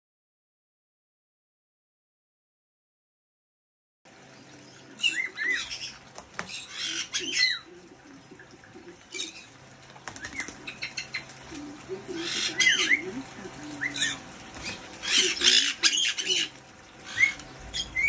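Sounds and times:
parrots shrill calls: 5.0 - 7.6, 12.1 - 18.0
bird wings flapping and splashing: 5.0 - 18.0.

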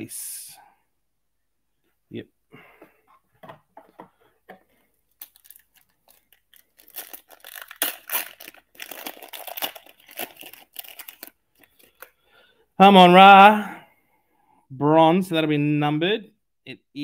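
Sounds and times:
foil wrapper crinkling and tearing: 5.1 - 12.1.

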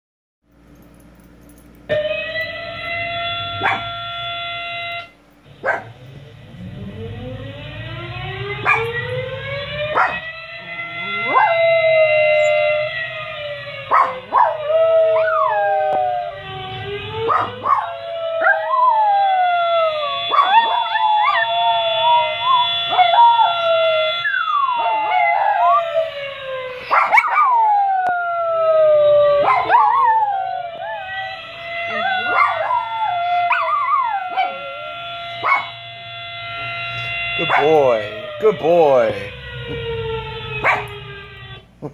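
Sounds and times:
siren wailing from speakers: 1.6 - 41.9
dogs yipping: 3.6 - 3.9, 5.6 - 5.9, 8.6 - 8.9, 9.9 - 10.2, 13.9 - 14.7, 26.8 - 27.6, 29.4 - 30.0, 32.2 - 32.8, 35.4 - 35.7, 40.6 - 41.0
dogs howling: 8.5 - 16.4, 17.2 - 35.8, 39.7 - 41.1.

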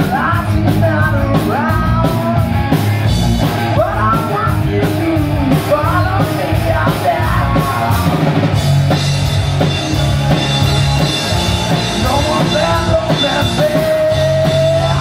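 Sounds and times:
man singing: 0.0 - 2.5, 3.4 - 8.2, 11.8 - 15.0
rock band playing: 0.0 - 15.0.

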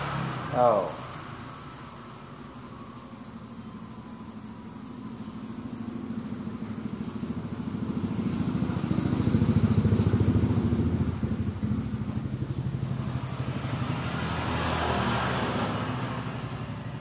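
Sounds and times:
motorcycle engine running: 4.0 - 17.0.

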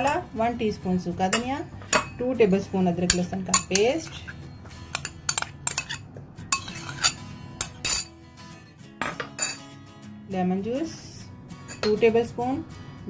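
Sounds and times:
metal spoon clinking on bowls: 0.0 - 0.3, 1.3 - 2.2, 3.1 - 8.2, 9.0 - 9.7, 11.6 - 12.0.

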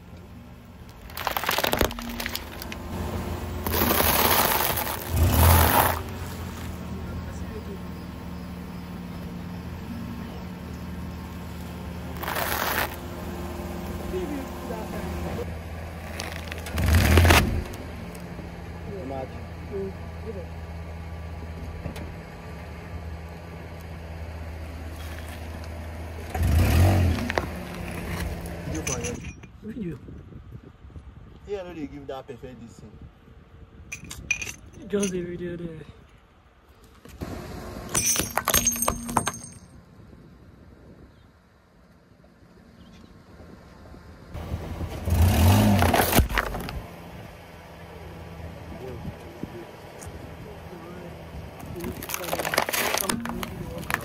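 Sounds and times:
car tyre rolling on asphalt: 0.0 - 9.8, 10.6 - 18.5, 23.7 - 28.8
plastic bag crackling: 0.9 - 2.8, 3.6 - 6.1, 12.2 - 13.0, 51.9 - 54.0
tyre crunching leafy greens: 0.9 - 2.8, 3.6 - 6.8, 12.2 - 13.0, 16.0 - 17.2, 51.8 - 54.0.

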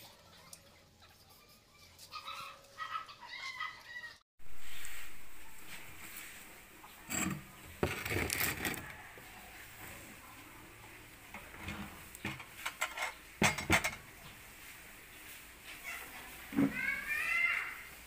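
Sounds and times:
glass bowls and dishes clinking: 7.0 - 8.9.

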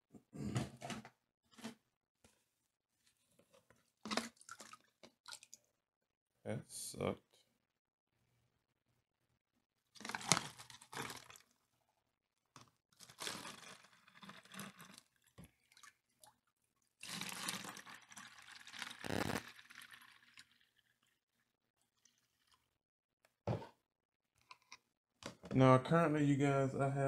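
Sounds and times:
plastic bottle crinkling: 4.0 - 4.9, 10.0 - 11.4, 13.0 - 15.1, 17.0 - 20.4
water pouring through funnel: 4.0 - 5.6, 10.0 - 11.5, 13.0 - 16.4, 17.0 - 21.2.

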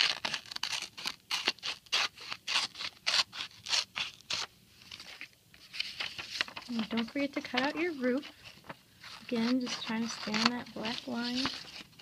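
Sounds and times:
scissors snipping paper: 0.0 - 4.5, 9.1 - 12.0.

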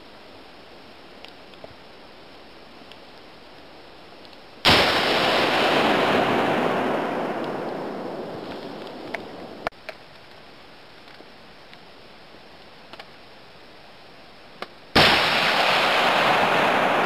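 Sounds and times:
faint clicks: 2.8 - 4.4, 8.4 - 11.9, 12.6 - 13.2
rifle shots with rolling echo: 4.6 - 9.7, 15.0 - 17.0.

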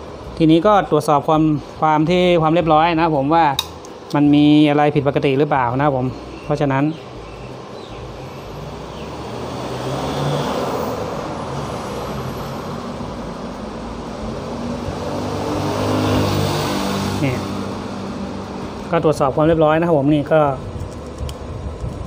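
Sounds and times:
vehicle engine rumbling: 7.1 - 22.0.

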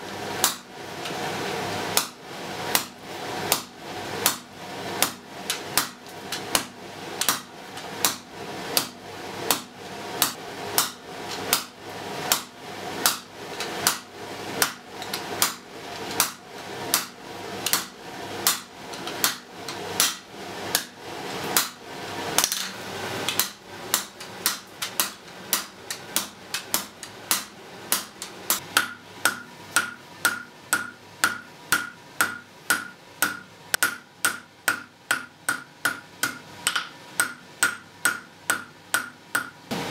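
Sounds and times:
hammer striking iron on an anvil: 0.4 - 0.7, 3.5 - 8.2, 8.8 - 11.7, 12.3 - 14.0, 14.6 - 15.6, 16.2 - 19.4, 20.0 - 20.9, 21.6 - 21.8, 23.3 - 39.6.

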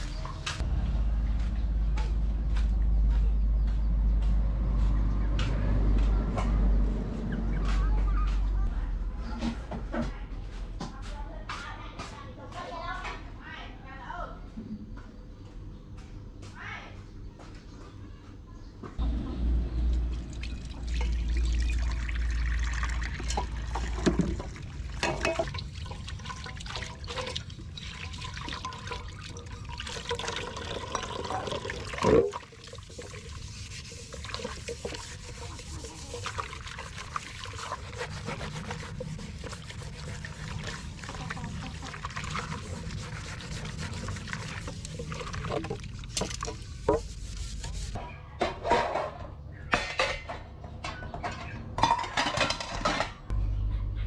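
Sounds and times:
water running into metal basin: 19.8 - 48.0
sponge scrubbing dishes: 20.5 - 48.0
dishes clinking: 23.2 - 25.6, 48.4 - 53.3.

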